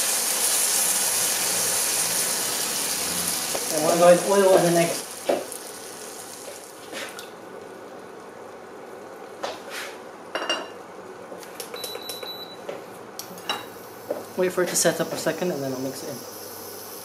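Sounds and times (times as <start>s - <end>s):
oil sizzling in frying pan: 0.0s - 7.3s, 13.3s - 17.0s.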